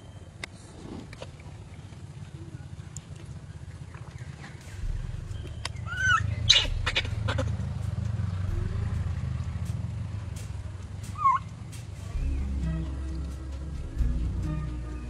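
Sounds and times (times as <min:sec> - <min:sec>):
low rumble: 0:04.3 - 0:15.0
infant monkey crying: 0:05.9 - 0:07.6.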